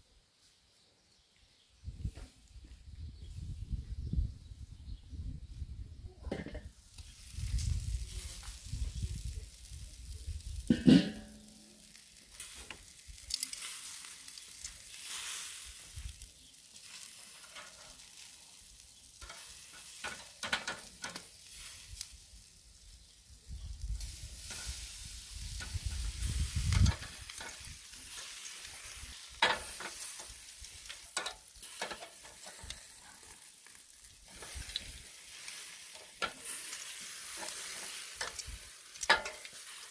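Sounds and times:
meat sizzling on a grill: 0:06.5 - 0:39.9
loud metallic clank: 0:10.7 - 0:11.4
metal tongs clicking and scraping: 0:35.9 - 0:39.6.

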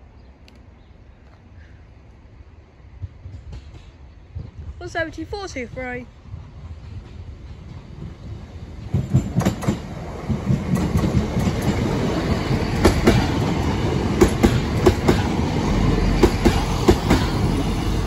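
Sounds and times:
train rumble: 0:01.3 - 0:18.0
train wheels clacking over rail joints: 0:06.3 - 0:17.7.

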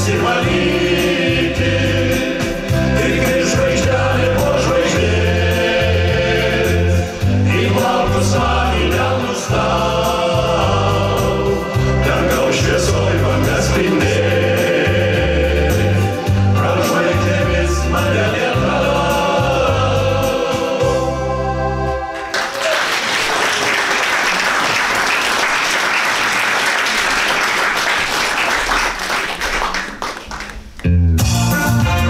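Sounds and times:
men singing in harmony: 0:00.0 - 0:21.7
bass-heavy instrumental music: 0:00.0 - 0:22.3, 0:30.8 - 0:32.0
audience applause: 0:22.2 - 0:30.8.

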